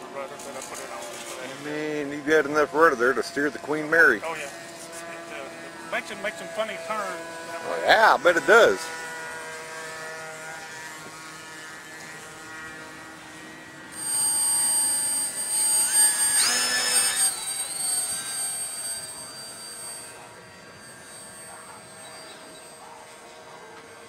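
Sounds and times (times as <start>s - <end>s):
model airplane motor whine: 0.0s - 24.0s.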